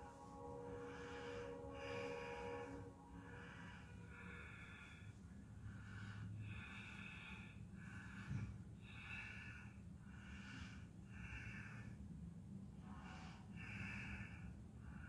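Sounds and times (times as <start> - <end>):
man breathing through nose: 0.0 - 12.0.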